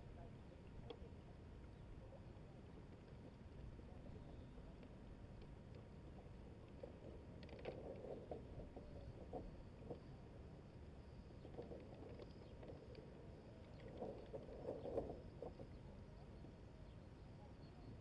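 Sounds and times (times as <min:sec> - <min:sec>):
wind rumble on microphone: 0:00.0 - 0:18.0.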